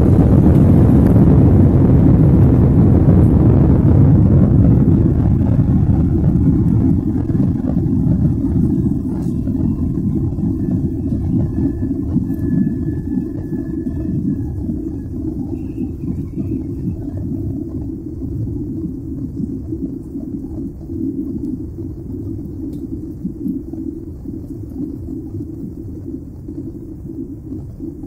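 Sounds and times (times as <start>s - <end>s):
faint steady whine: 0.0s - 28.0s
jet engine rumble: 0.0s - 28.0s.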